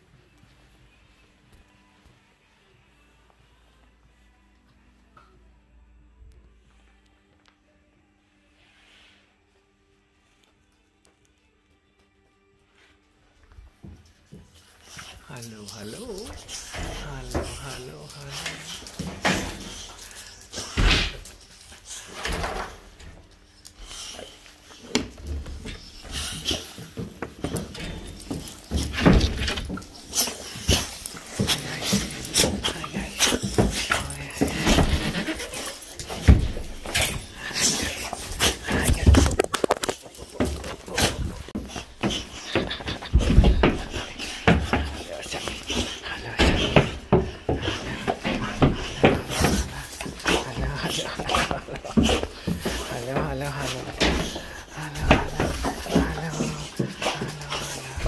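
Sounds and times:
dogs thumping wooden kennel: 24.9s - 58.0s.

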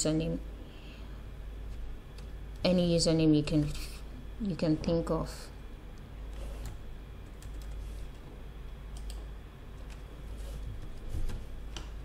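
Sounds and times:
steady low hum: 0.0s - 12.0s.

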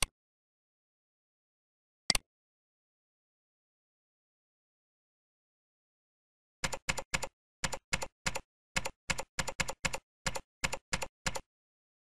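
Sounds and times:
keyboard typing: 6.6s - 11.5s.

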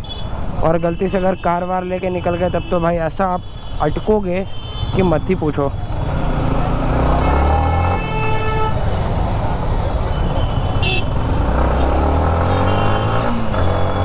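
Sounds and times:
city traffic: 0.0s - 14.0s
vehicle horns honking: 0.9s - 5.2s, 7.0s - 8.9s, 10.1s - 11.9s, 12.5s - 14.0s.

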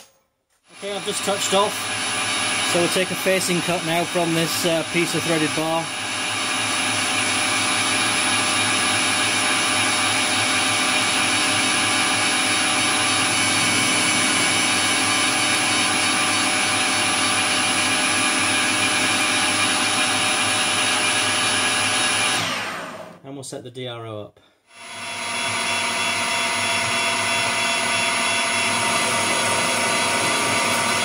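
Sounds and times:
metal lathe running: 0.7s - 20.6s.

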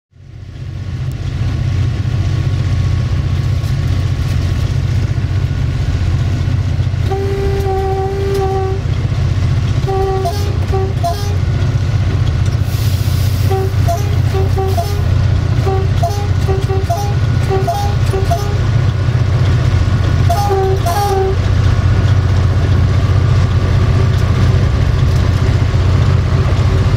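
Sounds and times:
locomotive engine drone: 0.1s - 26.9s
train horn blasts: 7.0s - 8.9s, 9.8s - 11.5s, 13.4s - 18.7s, 20.2s - 21.5s.

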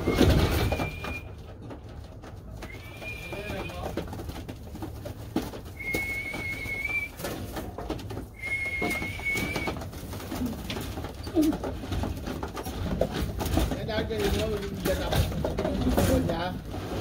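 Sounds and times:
high whistled notes: 5.8s - 7.2s, 8.4s - 9.8s.

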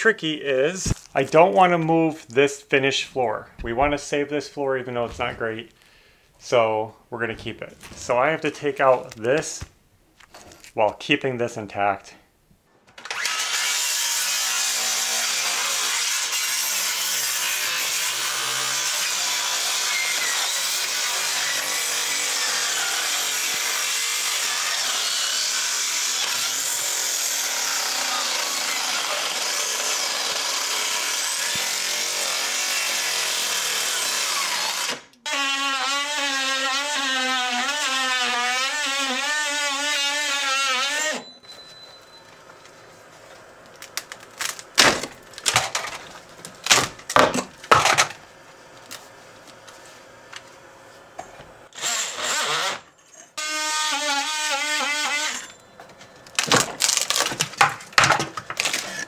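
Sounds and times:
power tool cutting wood: 13.0s - 41.3s, 51.7s - 55.6s.

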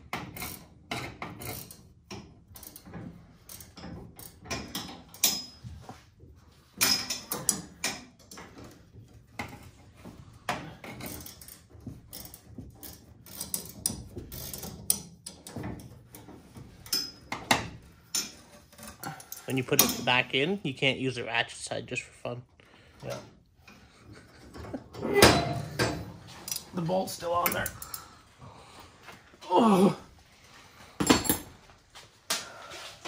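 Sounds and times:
metal parts knocking and rattling: 0.0s - 5.8s, 6.7s - 20.2s, 23.0s - 28.1s
hand tools clicking and clinking: 10.6s - 20.2s, 23.0s - 28.2s.

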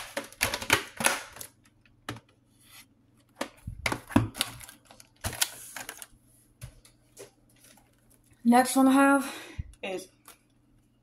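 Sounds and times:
plastic tapes clicking and knocking: 0.0s - 2.3s.

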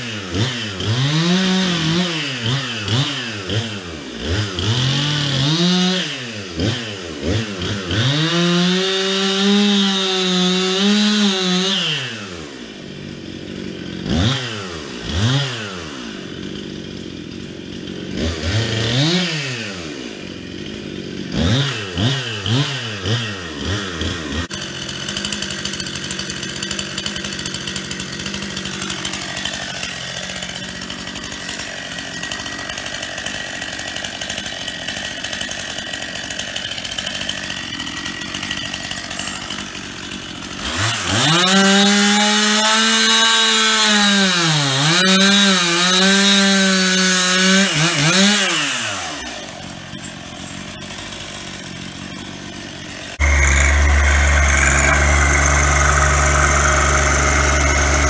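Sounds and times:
chainsaw revving: 0.0s - 58.0s.

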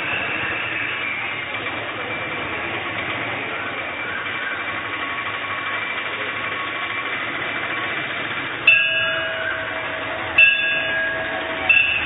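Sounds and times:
temple bell ringing: 0.0s - 1.5s, 7.8s - 12.0s.

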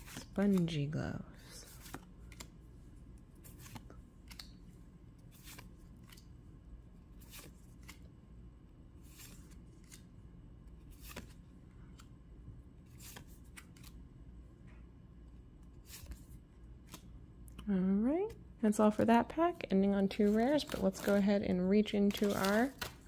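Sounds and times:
cards swishing and snapping: 1.7s - 2.6s, 3.3s - 6.4s, 7.0s - 8.1s, 9.0s - 12.1s, 12.9s - 14.0s, 15.7s - 17.1s.

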